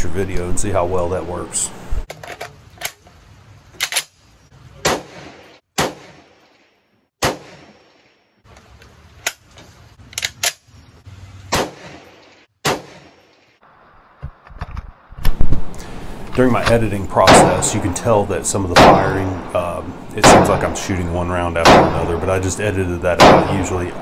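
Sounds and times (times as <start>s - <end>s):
rifle metallic clacks and knocks: 2.1s - 3.2s, 3.8s - 4.2s, 8.6s - 10.7s.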